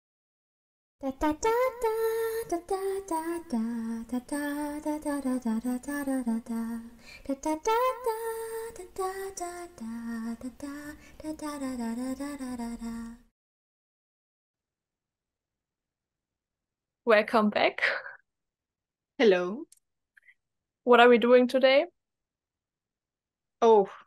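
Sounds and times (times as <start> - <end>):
woman singing slow melody: 1.0 - 13.3.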